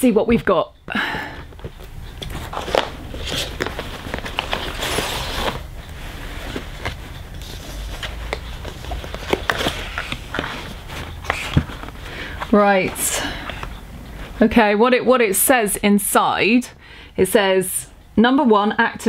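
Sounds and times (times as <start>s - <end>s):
cardboard and paper rustling: 1.4s - 13.8s.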